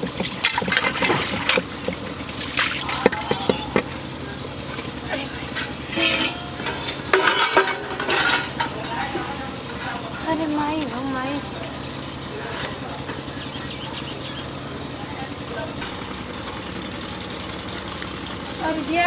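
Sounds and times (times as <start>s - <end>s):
water splashing in a basin: 0.0s - 3.9s
metal dishes clinking: 4.8s - 10.0s
plates clattering: 5.5s - 9.4s.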